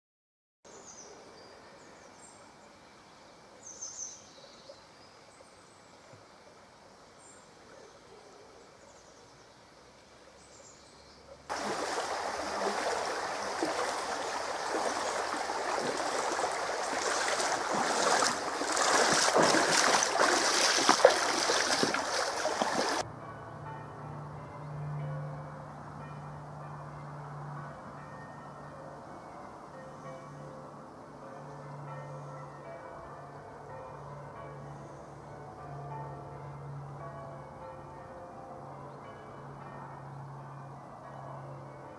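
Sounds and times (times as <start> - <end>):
stream rushing over riffles: 11.5 - 23.0.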